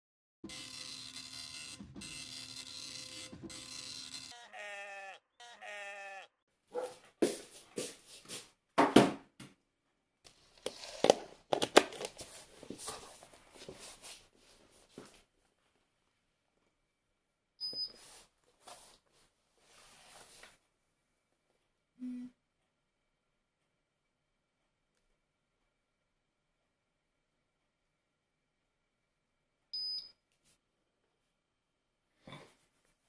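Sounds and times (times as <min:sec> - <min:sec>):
router and cable being handled: 0:10.3 - 0:13.4.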